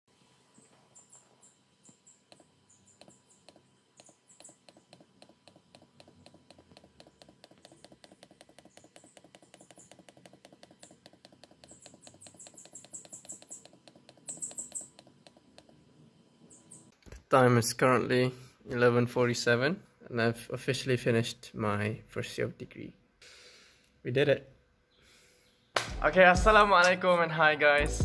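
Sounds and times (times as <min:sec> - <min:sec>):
high-pitched chirping: 0:01.0 - 0:15.6
rapid computer mouse clicks: 0:02.3 - 0:15.8.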